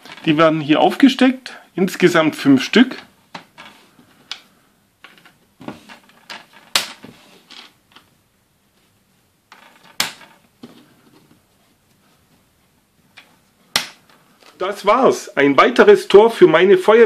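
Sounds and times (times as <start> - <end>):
soft handling rustles: 2.8 - 15.0.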